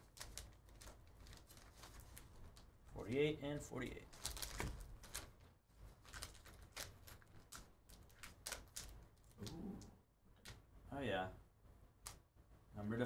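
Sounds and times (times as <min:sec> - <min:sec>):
plastic pouch crinkling and tearing: 0:00.0 - 0:02.7, 0:03.9 - 0:09.6.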